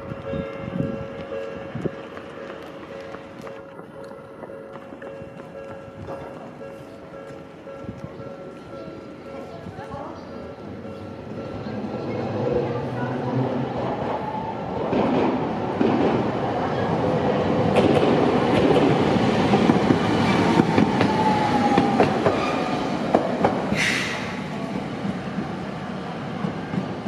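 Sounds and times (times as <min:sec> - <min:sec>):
tram running past: 0:00.0 - 0:27.0
short hiss: 0:23.8 - 0:24.2.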